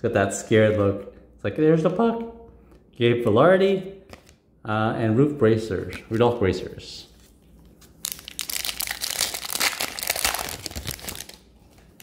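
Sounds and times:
foil wrapper crinkling: 7.8s - 12.0s.

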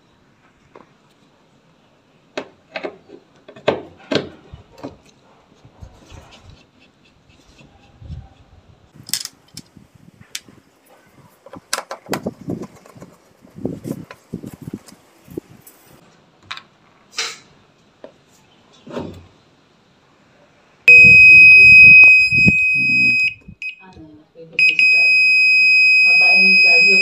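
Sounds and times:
high-pitched electronic beep: 20.9s - 23.8s, 24.6s - 27.0s.

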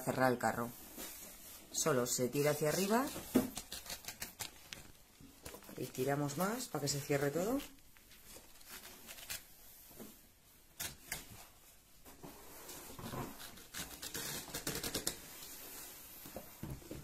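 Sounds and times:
fabric rustling: 0.6s - 10.6s.

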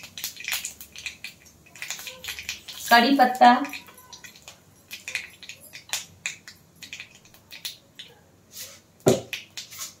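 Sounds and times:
spices crackling in hot oil: 0.0s - 10.0s.

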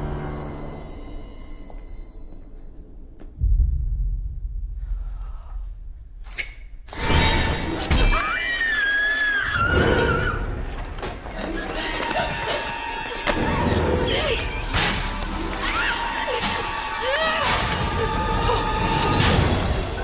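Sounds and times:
low rumbling drone: 2.1s - 6.2s
woman screaming: 15.6s - 19.2s.

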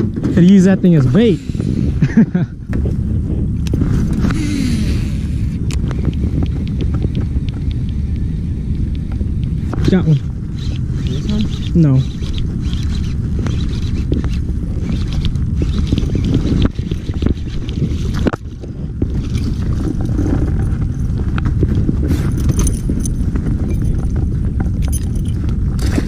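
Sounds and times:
low rumble: 0.0s - 26.0s
fishing reel clicking: 10.5s - 18.2s.

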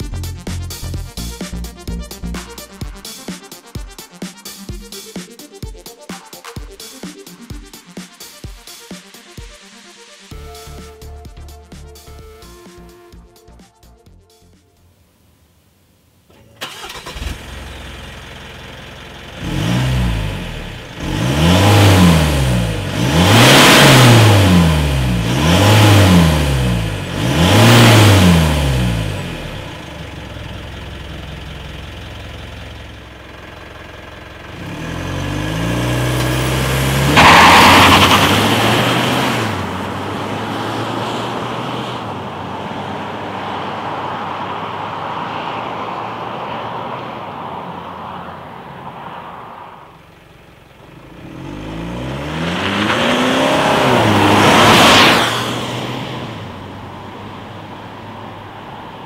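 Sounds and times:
car accelerating away: 16.3s - 58.9s
diesel car engine revving: 16.3s - 59.0s.

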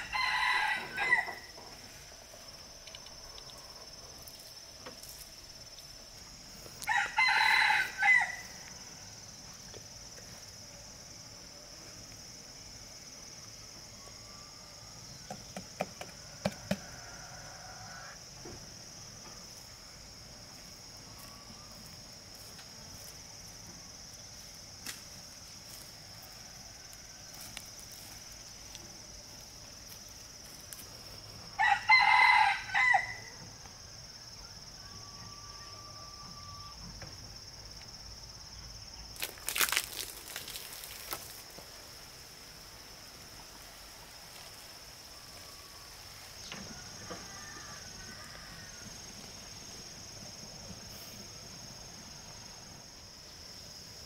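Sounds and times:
rooster crowing: 0.0s - 1.6s, 6.8s - 9.2s, 16.1s - 18.3s, 31.5s - 33.5s, 34.8s - 36.8s, 45.4s - 49.1s
high-pitched insect drone: 0.0s - 41.4s.

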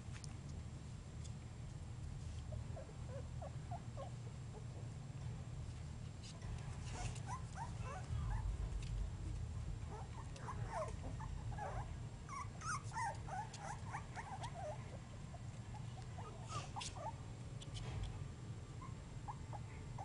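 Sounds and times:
puppies squeaking and whimpering: 6.9s - 8.4s, 9.9s - 14.8s.

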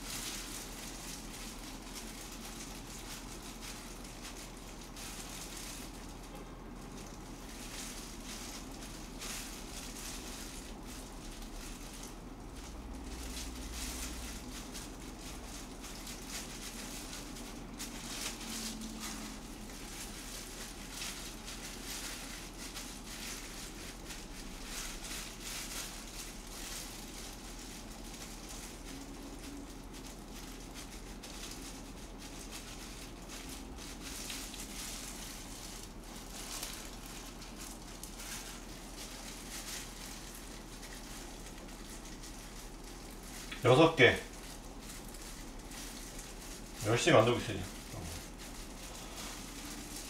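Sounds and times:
hands pressing rice clicks and rustles: 0.0s - 50.0s.

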